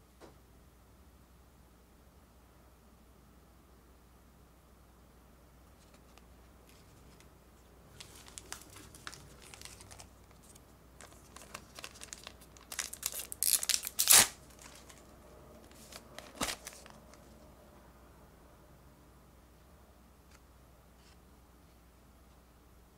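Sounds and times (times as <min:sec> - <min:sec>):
wrapper crinkling: 0:07.9 - 0:17.4
wrapper tearing: 0:08.0 - 0:15.1, 0:15.7 - 0:17.3.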